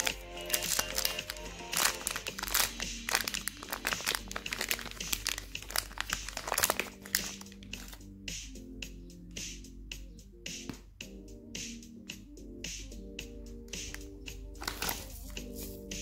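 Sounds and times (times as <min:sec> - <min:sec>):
plastic wrapper crinkling: 0:00.0 - 0:08.0, 0:14.6 - 0:15.8
background music: 0:00.0 - 0:16.0.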